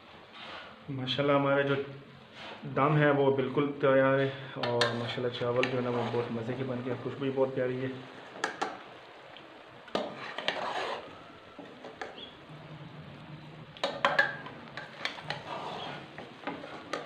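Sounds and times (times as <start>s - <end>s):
metal spoon scraping a pot: 4.6s - 6.7s, 9.9s - 12.4s, 13.8s - 17.0s.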